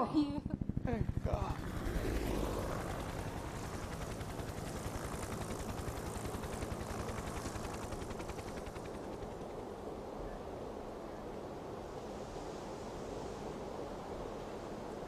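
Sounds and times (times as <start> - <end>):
helicopter rotors chopping: 0.0 - 9.9.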